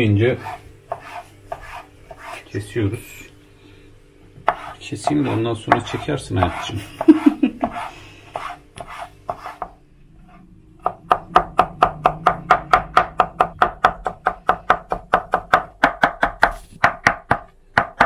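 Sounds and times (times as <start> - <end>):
knife chopping on plastic board: 4.4 - 9.8, 10.8 - 18.0.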